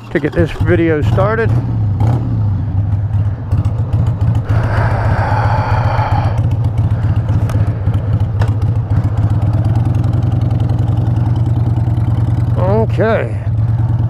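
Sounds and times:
motorcycle engine throbbing: 0:00.0 - 0:14.0
rushing noise: 0:04.4 - 0:07.9.

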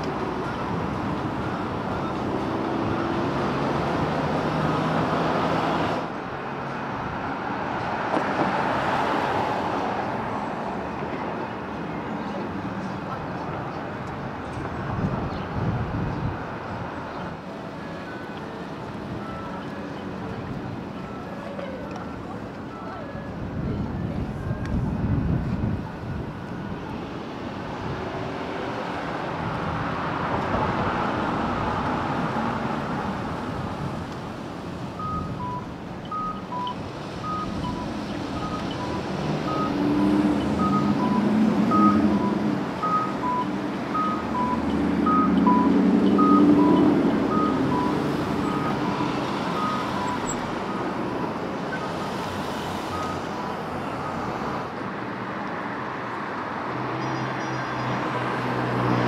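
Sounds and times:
city street traffic: 0:00.0 - 0:59.0
electronic two-tone beep: 0:35.0 - 0:49.0.

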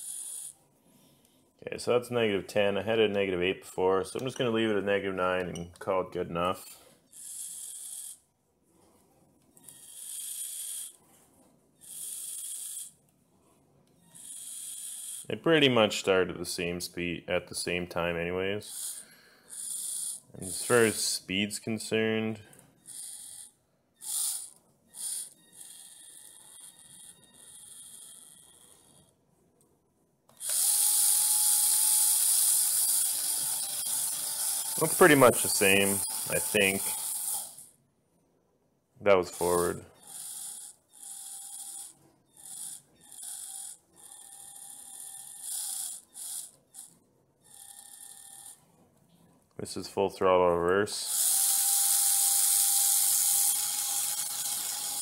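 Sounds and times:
small electric motors whirring: 0:00.0 - 0:00.6, 0:07.1 - 0:08.2, 0:09.6 - 0:11.2, 0:11.8 - 0:13.0, 0:14.0 - 0:15.3, 0:18.6 - 0:21.2, 0:22.7 - 0:29.1, 0:30.3 - 0:37.8, 0:39.2 - 0:48.6, 0:51.0 - 0:55.0.

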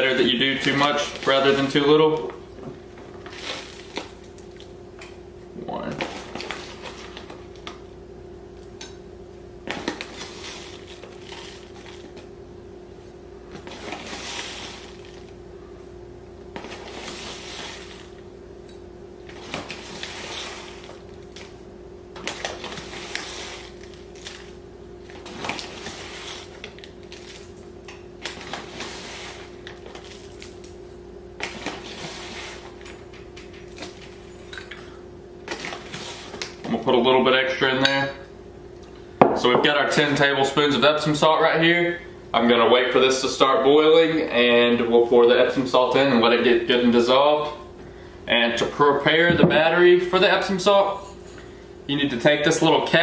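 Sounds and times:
gritty scrapes of salt: 0:13.6 - 0:15.2, 0:16.6 - 0:18.1, 0:19.7 - 0:21.0, 0:22.6 - 0:24.5, 0:25.2 - 0:27.4, 0:28.4 - 0:30.6, 0:31.5 - 0:32.8.

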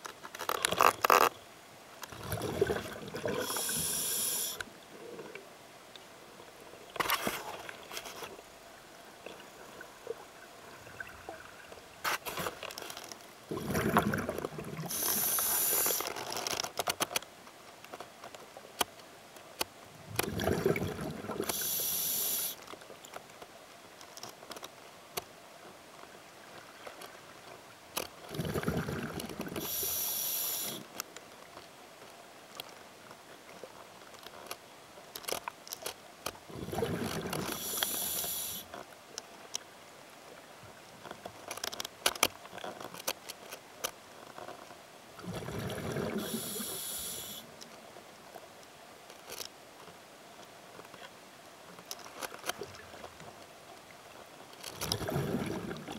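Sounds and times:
exhaled bubbles rumbling: 0:02.2 - 0:03.6, 0:13.5 - 0:14.9, 0:20.0 - 0:21.5, 0:28.3 - 0:29.6, 0:36.5 - 0:37.5, 0:45.2 - 0:46.4, 0:54.9 - 0:55.9
regulator air hiss: 0:03.4 - 0:04.6, 0:14.9 - 0:16.1, 0:21.5 - 0:22.6, 0:29.6 - 0:30.9, 0:37.5 - 0:38.7, 0:46.2 - 0:47.5
faint clicks: 0:37.4 - 0:39.7.

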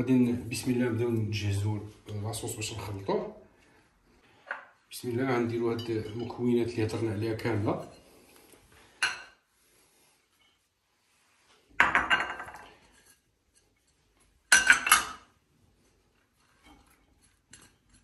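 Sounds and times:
ceramic bowls knocking on dish: 0:11.8 - 0:12.7.

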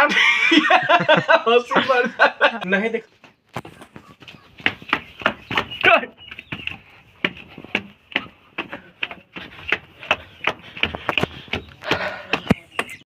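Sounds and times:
flip-flop footsteps on stairs: 0:03.2 - 0:13.0.

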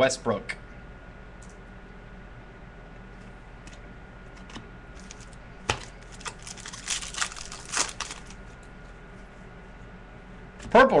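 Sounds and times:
card wrapper crinkling and tearing: 0:05.0 - 0:08.4
wrapper snap: 0:05.0 - 0:08.4.

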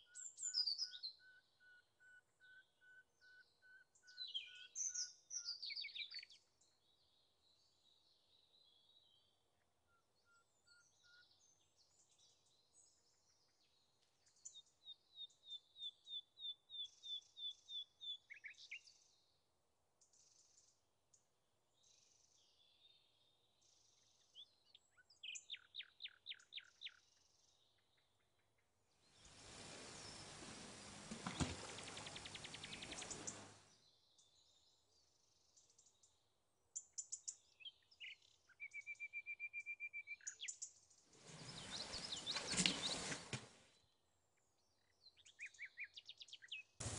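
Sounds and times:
songbirds singing and chirping: 0:00.0 - 0:19.4, 0:20.0 - 0:46.9
rustling crackling noise: 0:29.2 - 0:33.6, 0:41.2 - 0:43.7.

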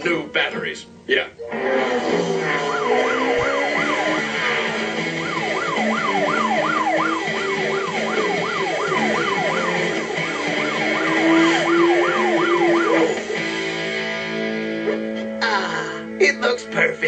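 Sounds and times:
cartoon police siren wailing: 0:01.5 - 0:13.6.

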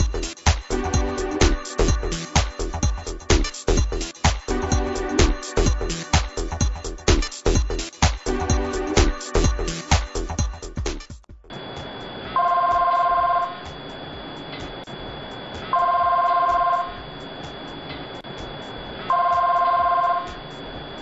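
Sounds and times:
phone ringing with two-tone trill: 0:12.3 - 0:14.6, 0:15.2 - 0:18.1, 0:19.1 - 0:21.0.

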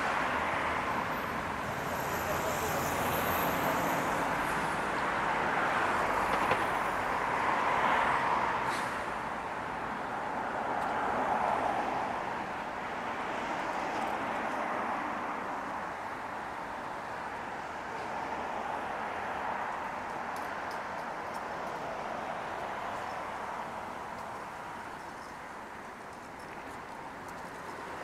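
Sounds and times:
passing cars: 0:00.0 - 0:28.0.

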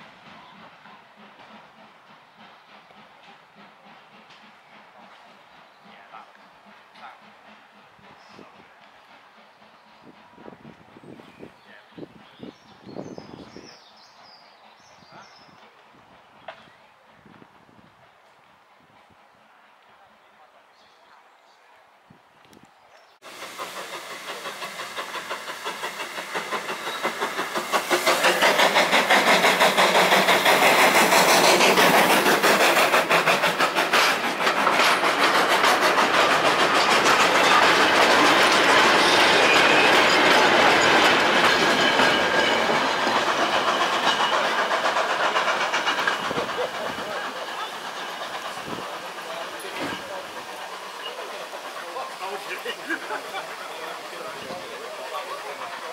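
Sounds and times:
steam train beat: 0:00.0 - 0:12.4, 0:23.2 - 0:55.9
carriage wheels clattering on rails: 0:24.5 - 0:53.1.

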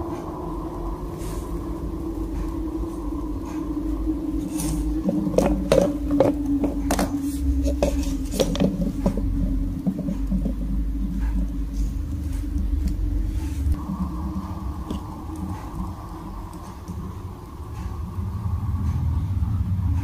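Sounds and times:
steady low hum: 0:00.0 - 0:20.0.

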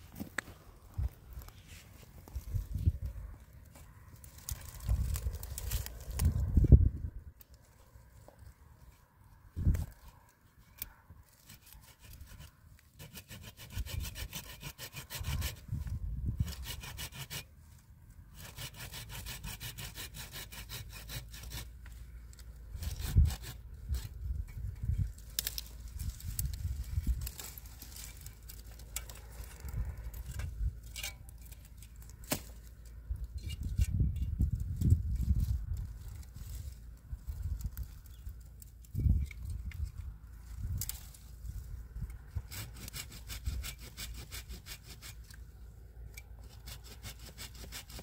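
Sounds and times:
hand saw cutting wood: 0:11.3 - 0:15.8, 0:16.4 - 0:17.5, 0:18.4 - 0:22.0, 0:22.8 - 0:24.2, 0:42.3 - 0:45.4, 0:46.4 - 0:48.0.

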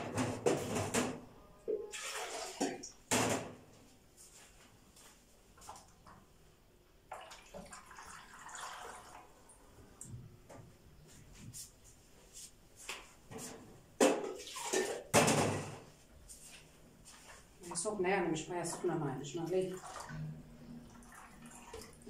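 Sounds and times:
water pouring into metal tray: 0:01.9 - 0:03.0, 0:07.1 - 0:09.6, 0:19.4 - 0:22.0.

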